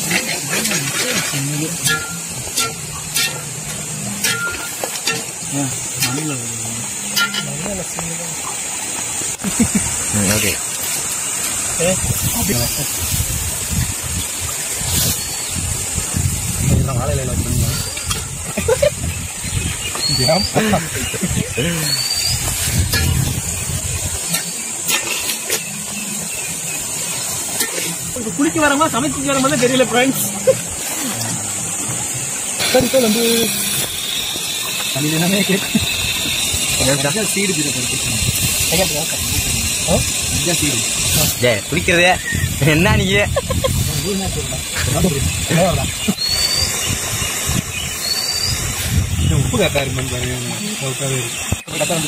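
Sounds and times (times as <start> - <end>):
spatula scraping metal pot: 0.0 - 6.1, 6.9 - 7.6
steady high hiss: 0.0 - 52.0.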